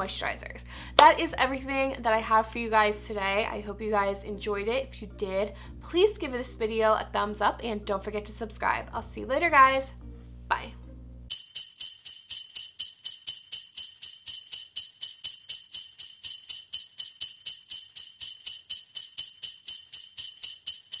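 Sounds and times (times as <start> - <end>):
sleigh bells shaken: 11.3 - 21.0.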